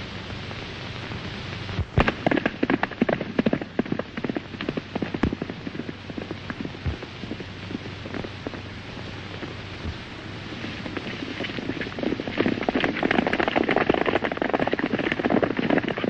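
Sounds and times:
steady hiss: 0.0 - 16.0
horse hooves galloping: 2.0 - 8.6, 10.6 - 16.0.

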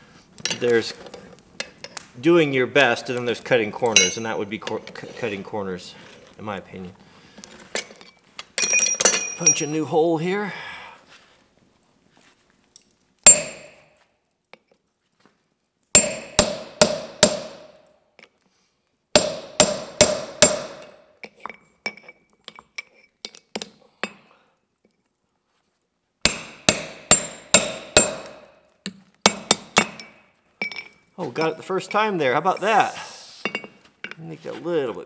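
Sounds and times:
hammer striking punch on hot steel: 13.3 - 13.9, 16.0 - 17.8, 19.2 - 21.0, 26.3 - 28.6, 29.3 - 30.2.

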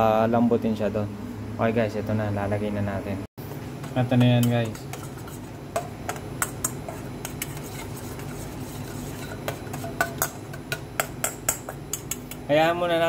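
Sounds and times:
steady low hum: 0.0 - 13.0
metal spoon clinking in steel bowl: 9.2 - 12.4.

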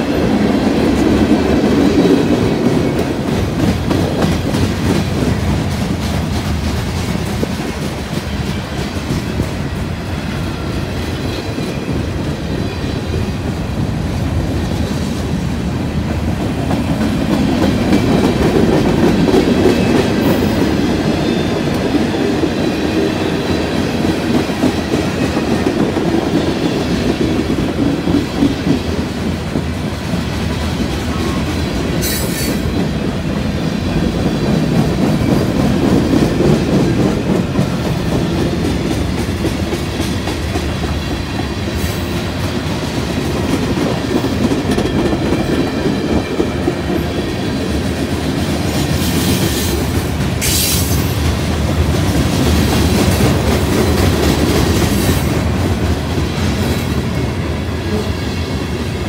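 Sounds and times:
freight train wheels clattering: 0.0 - 59.0.

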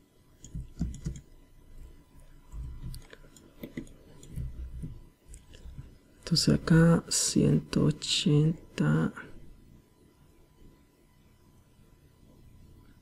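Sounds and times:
keyboard taps: 0.4 - 1.3
computer mouse clicks: 0.4 - 1.4, 2.5 - 5.6.

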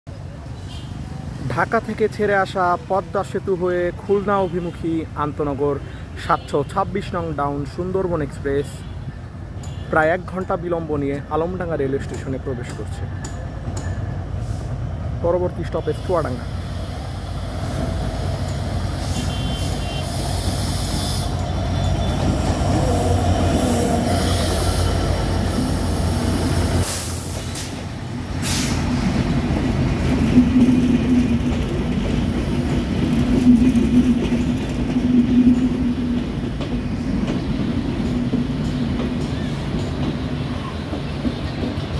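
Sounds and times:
train coaches rolling: 0.1 - 41.9
locomotive engine rumbling: 9.1 - 41.9.

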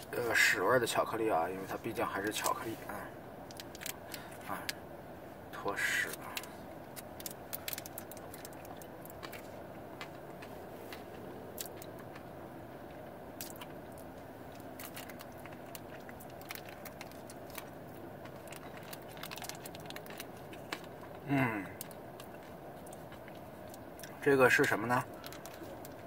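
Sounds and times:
steady low hum: 0.0 - 26.0
mouth chewing candy: 1.6 - 4.8, 5.6 - 26.0
popping candy crackles: 3.4 - 4.8, 5.7 - 12.3, 13.4 - 26.0.

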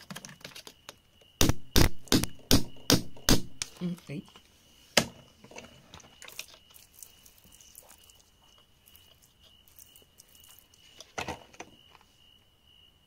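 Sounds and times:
grit and soil scraping: 5.4 - 11.6.

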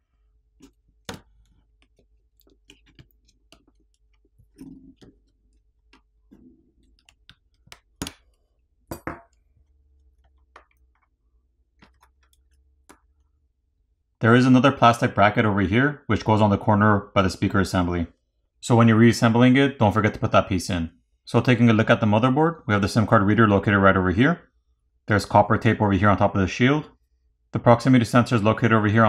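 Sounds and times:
small clicks and taps: 0.6 - 13.3.

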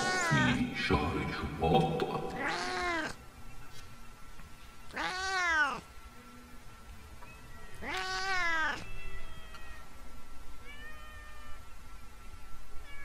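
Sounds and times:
cats yowling: 0.0 - 0.6, 2.3 - 3.2, 4.9 - 5.9, 7.6 - 10.0, 10.6 - 11.7.

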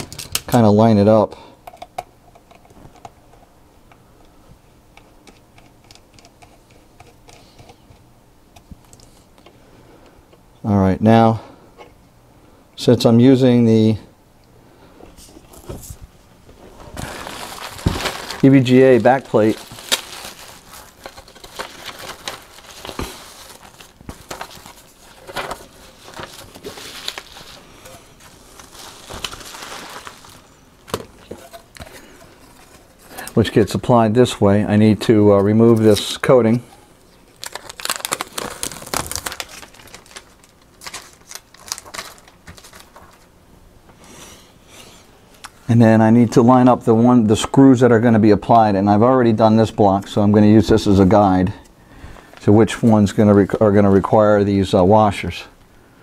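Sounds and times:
plastic bag crinkling: 16.7 - 33.4, 37.1 - 43.3.

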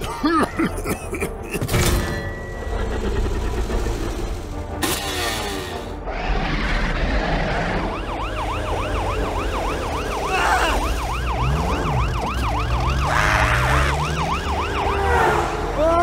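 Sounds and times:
police siren wailing: 7.5 - 16.0.

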